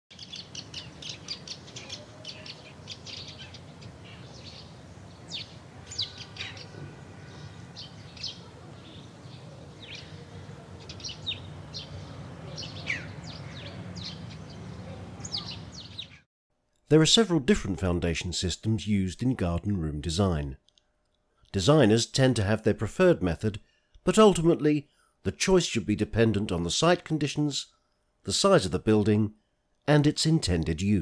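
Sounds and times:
birds chirping and singing: 0:00.1 - 0:16.2.

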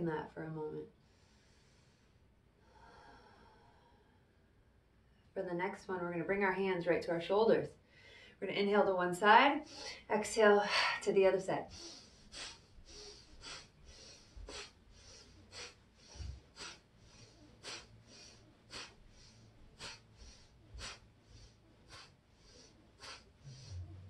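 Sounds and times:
woman breathing rhythmically: 0:00.9 - 0:05.2, 0:07.8 - 0:08.4, 0:09.4 - 0:24.0.

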